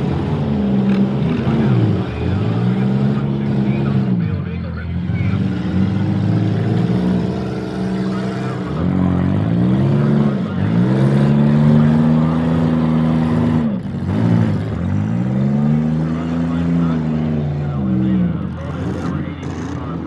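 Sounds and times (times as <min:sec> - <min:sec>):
car engines revving hard: 0:00.0 - 0:20.0.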